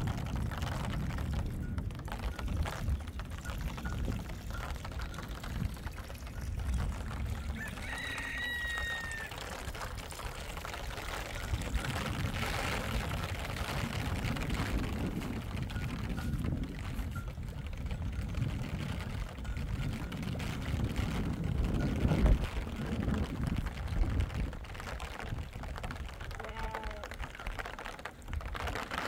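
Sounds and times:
wind rumbling on microphone: 0.0 - 29.0
water trickling into metal trough: 1.3 - 20.7.

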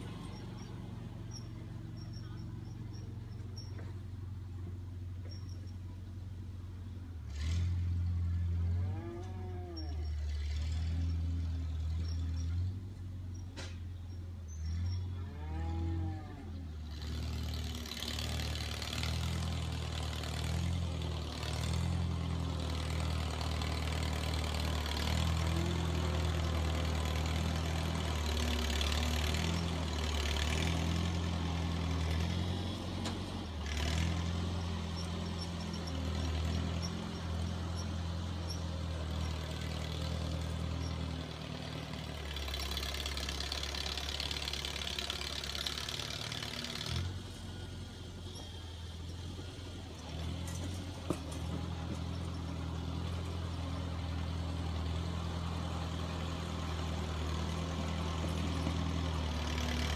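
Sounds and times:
tractor engine running: 0.0 - 8.8, 16.6 - 59.9
cow mooing: 8.8 - 10.0, 15.2 - 16.5.

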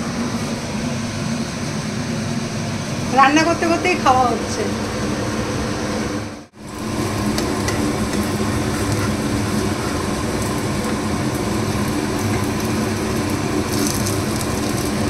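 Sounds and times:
steady low hum: 0.0 - 15.0
batter sizzling in oil: 6.5 - 15.0
spatula scraping pan: 7.0 - 12.8.

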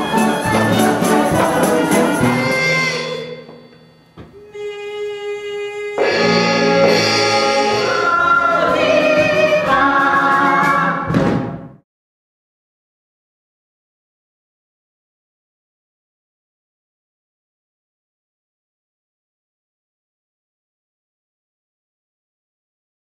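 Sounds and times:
ensemble singing with accompaniment: 0.0 - 3.6, 4.2 - 11.4.

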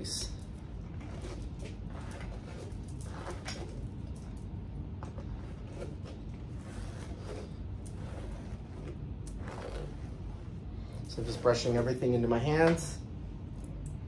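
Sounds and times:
hairbrush strokes through hair: 5.2 - 12.2.

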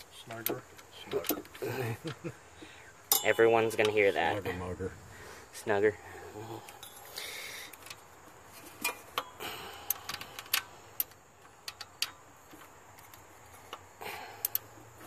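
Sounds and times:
socket ratchet clicking: 13.0 - 14.7.

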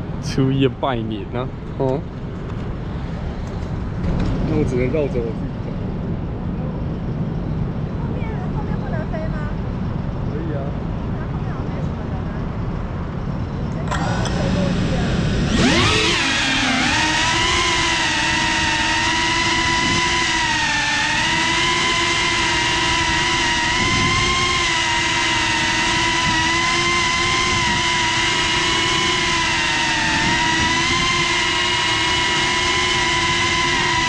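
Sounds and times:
drone motors and propellers whining: 13.2 - 34.0.

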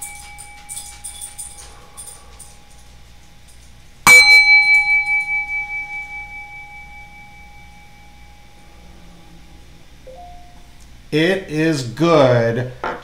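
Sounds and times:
chime ringing: 0.0 - 2.8, 4.1 - 10.8.

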